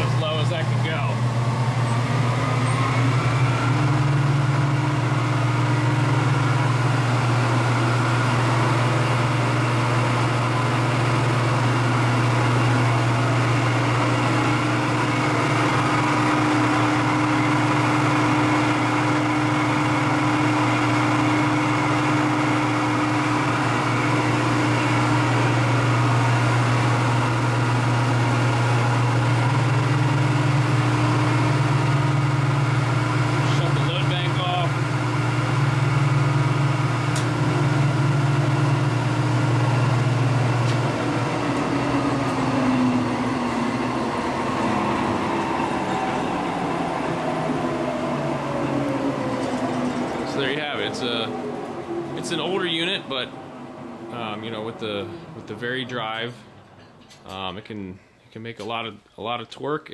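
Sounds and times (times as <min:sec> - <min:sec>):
alternator test stand humming: 0:00.0 - 0:57.6
alternator whine: 0:00.0 - 0:57.7.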